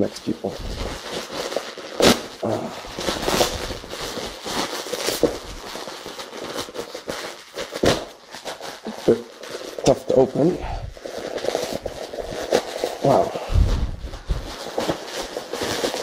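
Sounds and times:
plastic bag crinkling and tearing: 0.0s - 16.0s.

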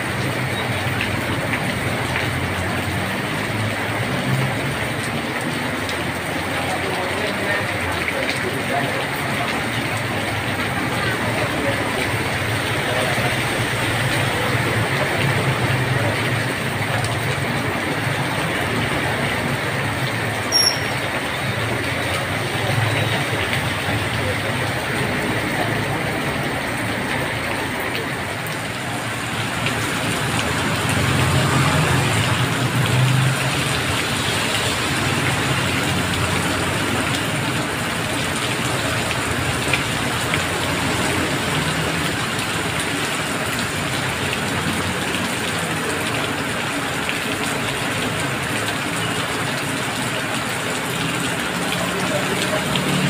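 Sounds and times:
heavy rain on road: 0.0s - 53.0s
vehicles passing through water: 0.0s - 53.0s.

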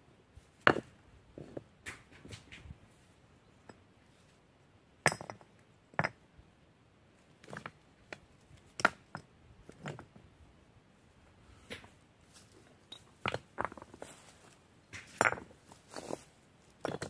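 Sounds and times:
stones clacking together: 0.6s - 2.7s, 7.4s - 10.2s, 12.9s - 14.1s, 14.9s - 17.0s.

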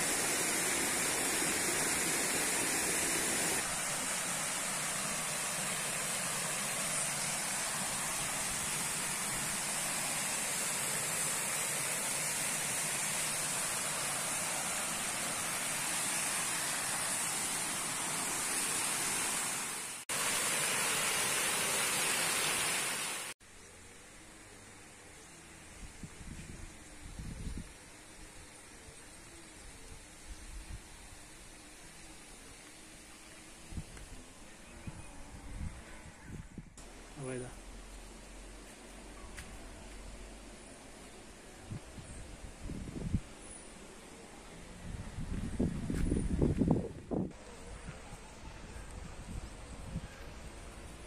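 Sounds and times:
creek water rushing: 0.0s - 23.4s
small waterfall splashing: 0.0s - 23.4s.

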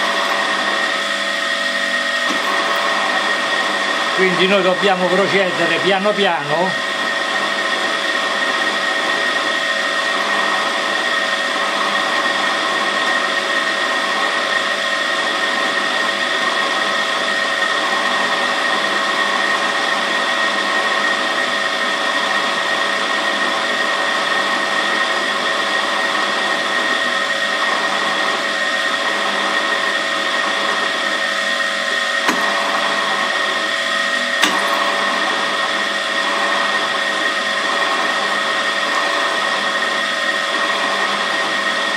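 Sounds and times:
drill press motor whine: 0.0s - 41.9s.

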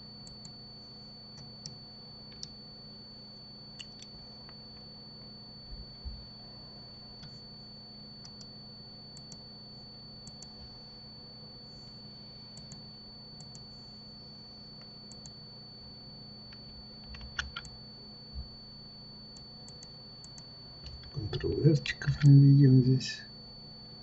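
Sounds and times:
faint high whine: 0.0s - 24.0s
keyboard keystrokes: 17.0s - 17.7s
mouse clicks: 17.1s - 17.7s.

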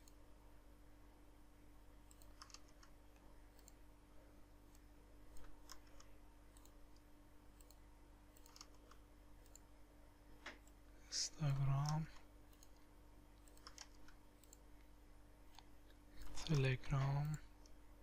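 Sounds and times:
low steady hum: 0.0s - 18.0s
computer mouse and keyboard clicks: 2.1s - 3.8s, 4.7s - 9.7s, 11.5s - 14.6s, 15.5s - 17.8s.

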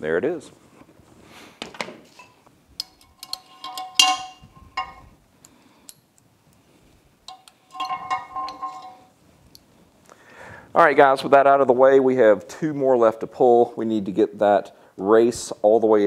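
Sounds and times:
metal clinks and taps: 2.2s - 5.2s, 7.2s - 9.1s.

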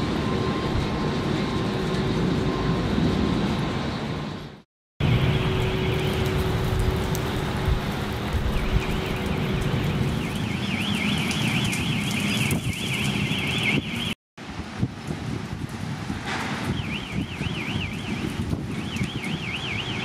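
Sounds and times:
wind buffeting microphone: 0.0s - 20.0s
electronic alarm warbling: 8.5s - 14.2s, 16.8s - 20.0s.

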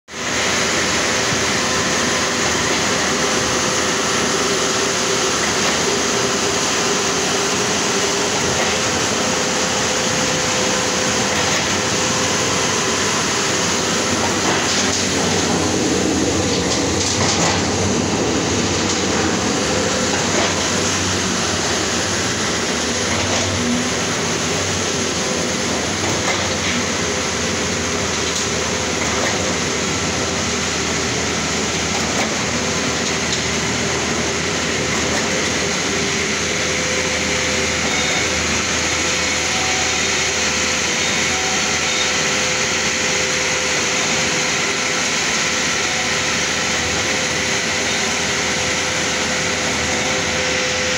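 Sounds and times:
concrete pump mechanical din: 0.2s - 50.9s.

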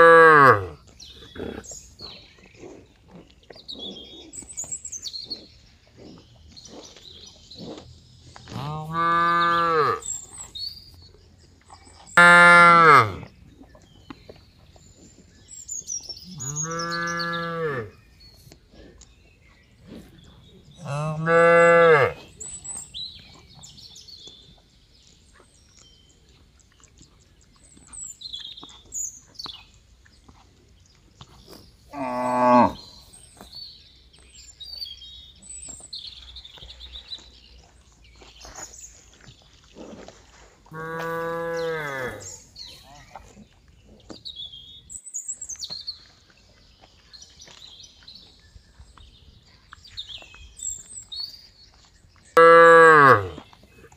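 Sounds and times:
cattle mooing: 52.4s - 53.4s.

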